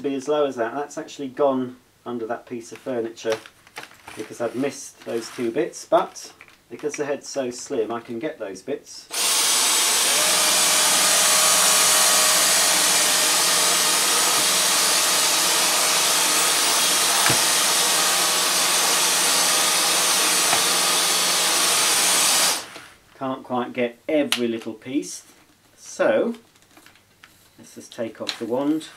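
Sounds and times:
cordless vacuum on carpet: 0:09.2 - 0:22.9.

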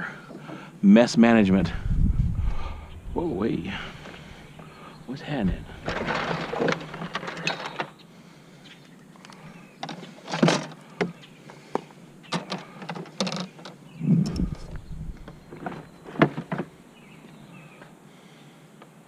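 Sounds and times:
heavy thumps: 0:05.3 - 0:07.4
scrap metal clanking and scraping: 0:05.4 - 0:07.9.

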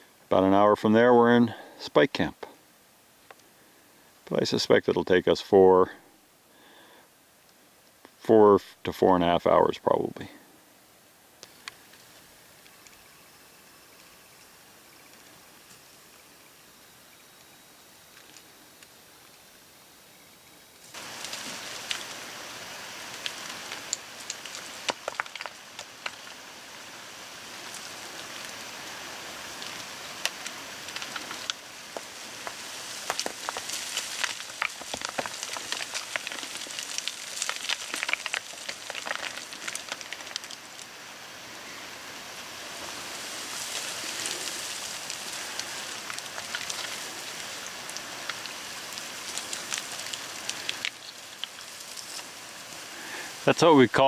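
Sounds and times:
shifting stones hissing: 0:20.8 - 0:54.0.

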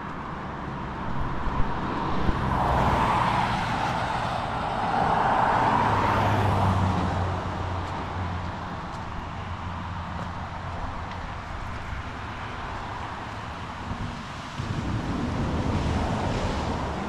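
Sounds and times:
tyre noise of passing traffic: 0:00.0 - 0:17.0.

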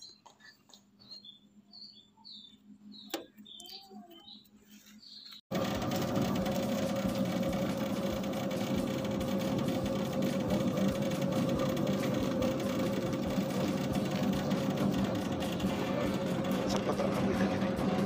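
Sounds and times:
dough mixer motor humming: 0:05.5 - 0:18.0.

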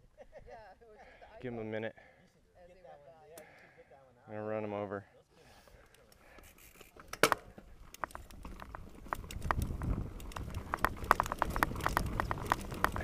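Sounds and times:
bike rattling and clicking: 0:05.8 - 0:13.0
tyres crunching over stones: 0:07.6 - 0:13.0.

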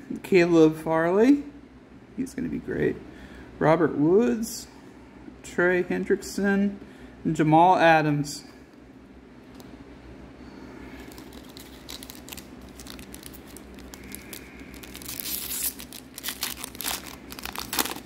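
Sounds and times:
foil pack crinkling and tearing: 0:10.9 - 0:18.0.

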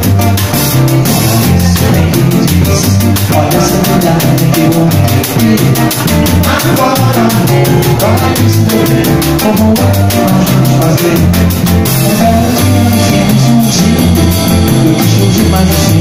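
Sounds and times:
bass guitar running line: 0:00.0 - 0:16.0
drum kit cymbal pattern: 0:00.0 - 0:16.0
guitar: 0:00.0 - 0:16.0.

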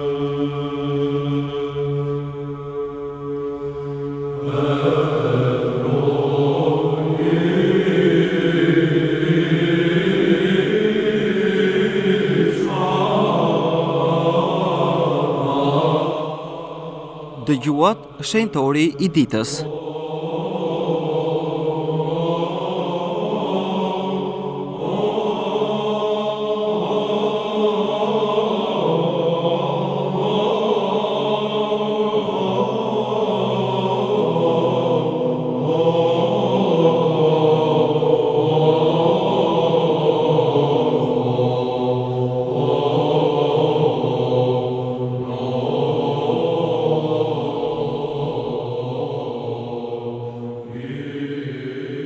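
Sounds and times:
voices chanting slow melody: 0:00.2 - 0:52.0.

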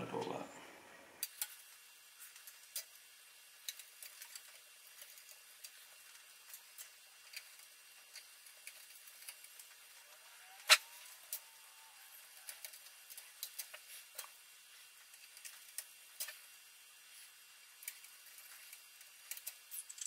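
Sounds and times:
screwdriver and screws clicking: 0:19.2 - 0:20.0.

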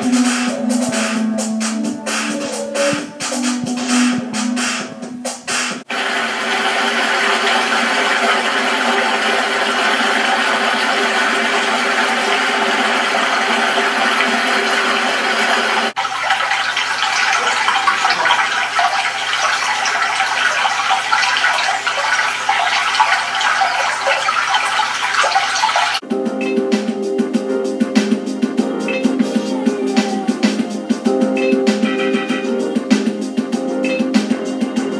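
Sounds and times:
running water through speaker: 0:05.8 - 0:26.0.

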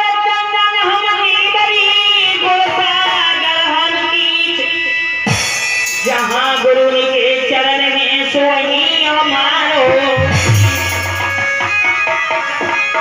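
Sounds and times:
sustained accompaniment: 0:10.2 - 0:11.8
drum and cymbal crash: 0:10.2 - 0:11.9.

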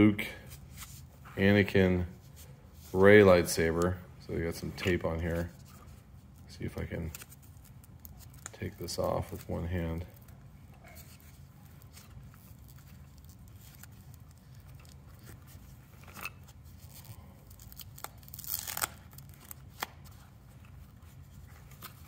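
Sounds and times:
tape rustling: 0:00.5 - 0:22.0
tape ripping: 0:11.0 - 0:20.3.

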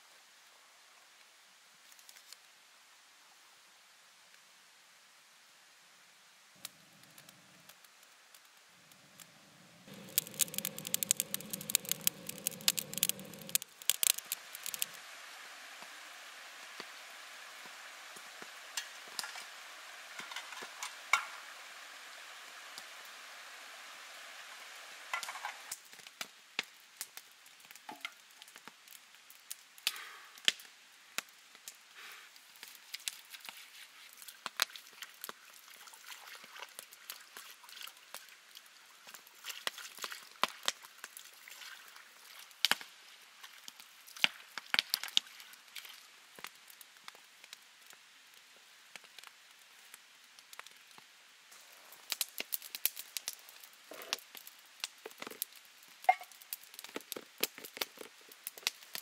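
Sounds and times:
water dripping onto stone: 0:09.9 - 0:15.0.

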